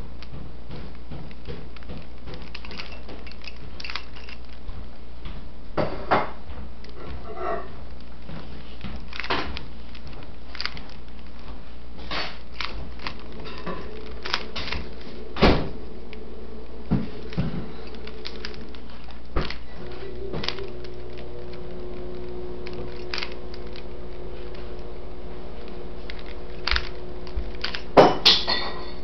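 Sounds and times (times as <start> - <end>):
plastic puzzle cube clicking: 1.3 - 4.6, 9.0 - 11.5, 12.1 - 15.1, 17.2 - 19.8, 20.4 - 23.9, 26.0 - 28.0.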